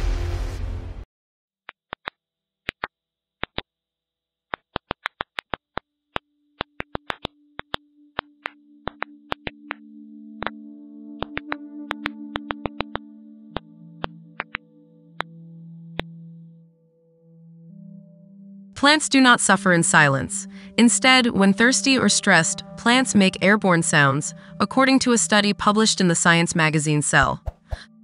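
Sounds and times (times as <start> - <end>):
intro music swell: 0.0 - 1.0
low synthesizer drone: 9.8 - 27.0.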